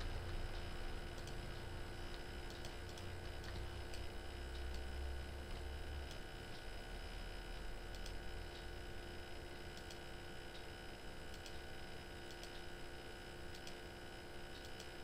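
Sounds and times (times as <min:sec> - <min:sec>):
low electrical hum: 0:00.0 - 0:15.0
computer mouse clicks: 0:00.5 - 0:01.4, 0:02.1 - 0:04.9, 0:05.5 - 0:06.6, 0:07.8 - 0:08.7, 0:09.7 - 0:10.7, 0:11.3 - 0:12.7, 0:13.5 - 0:13.8, 0:14.5 - 0:15.0.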